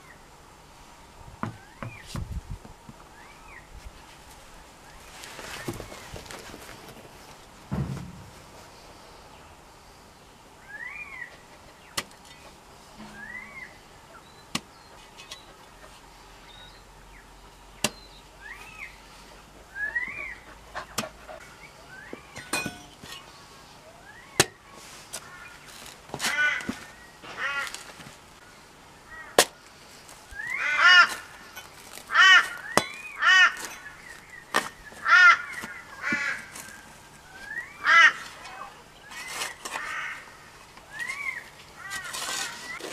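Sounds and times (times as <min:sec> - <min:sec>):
spade striking hard ground: 0:07.7 - 0:08.7, 0:13.0 - 0:15.4, 0:17.8 - 0:18.1, 0:22.3 - 0:23.3, 0:29.4 - 0:29.7, 0:31.0 - 0:34.8
crows cawing: 0:25.2 - 0:28.0, 0:29.1 - 0:29.5, 0:30.4 - 0:31.5, 0:32.1 - 0:33.7, 0:35.0 - 0:36.8, 0:37.4 - 0:38.7, 0:39.7 - 0:42.6.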